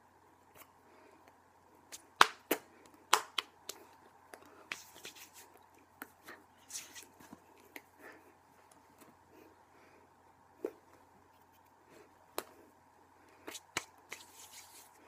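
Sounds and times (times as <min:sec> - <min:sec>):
sharp claps and snaps: 0:01.9 - 0:03.9, 0:13.5 - 0:14.2
hands slapping and tapping: 0:01.9 - 0:05.4, 0:13.5 - 0:14.7.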